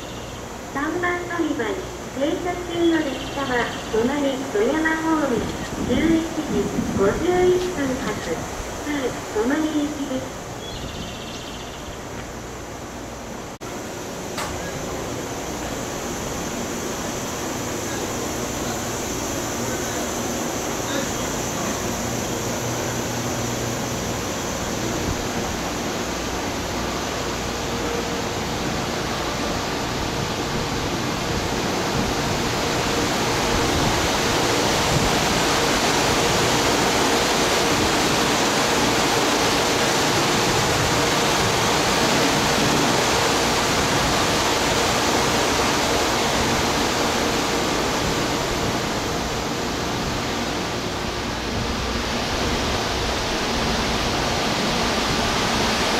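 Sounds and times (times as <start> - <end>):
train equipment hiss and hum: 0.0 - 55.9.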